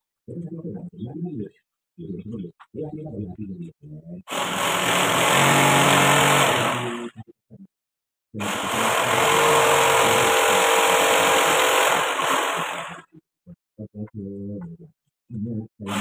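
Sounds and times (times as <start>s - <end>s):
electric router cutting wood: 4.3s - 7.1s, 8.4s - 13.0s.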